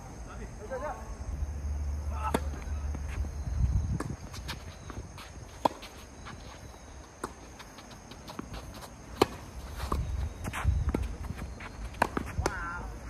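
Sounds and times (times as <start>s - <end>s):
racket striking tennis ball: 2.2s - 3.1s, 11.9s - 12.6s
footsteps on court: 2.3s - 12.6s.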